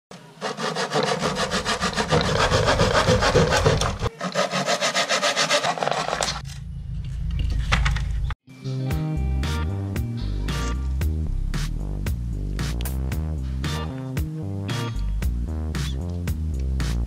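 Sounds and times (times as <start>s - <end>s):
hand saw cutting plywood: 0.4s - 6.4s.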